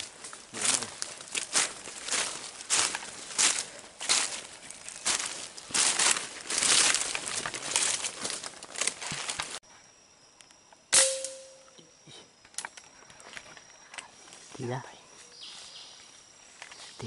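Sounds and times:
footsteps through undergrowth: 0.0 - 9.6, 13.1 - 17.0
brief ringing tone: 11.0 - 11.8.

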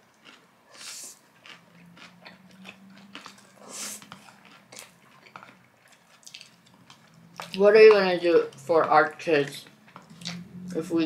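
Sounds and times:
wet chewing clicks: 0.0 - 10.9
noodles being slurped: 0.2 - 7.7.

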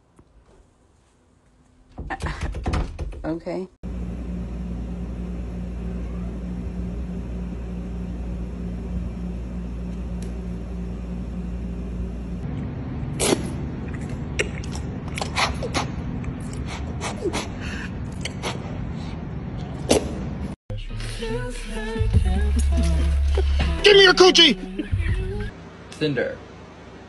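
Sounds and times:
wet lip clicks and smacks: 13.2 - 16.8.

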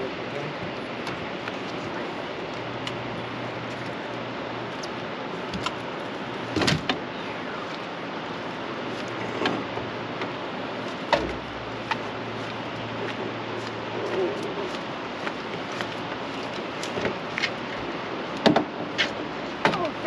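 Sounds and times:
steady rushing noise: 0.0 - 20.0
knocks and thumps against boat: 6.5 - 7.1, 9.1 - 10.4, 11.0 - 12.1, 12.8 - 20.0.

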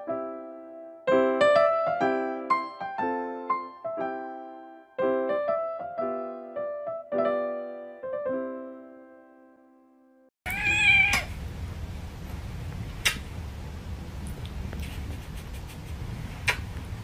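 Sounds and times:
cat meowing: 10.5 - 11.4
sharp click: 13.0 - 13.2.

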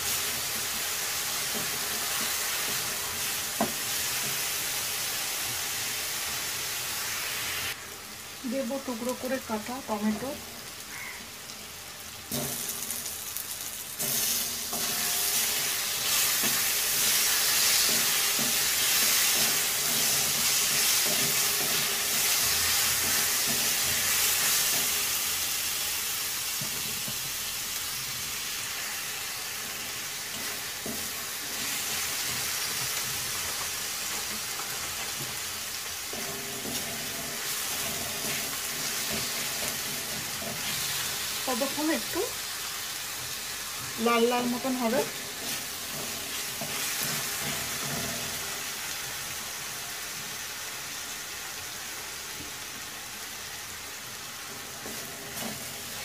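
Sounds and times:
spatula stirring in a pan: 0.0 - 6.5, 12.3 - 25.8, 26.5 - 49.2, 54.3 - 56.0
tomatoes sizzling in hot oil: 0.0 - 56.0.

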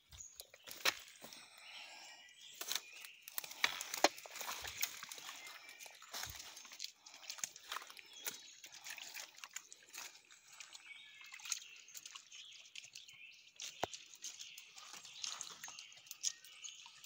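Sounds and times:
footsteps crackling dry leaves: 0.1 - 1.6, 2.5 - 10.3
twig snapping: 0.6 - 1.1, 2.6 - 5.2
dog paws in leaf litter: 2.6 - 8.6.

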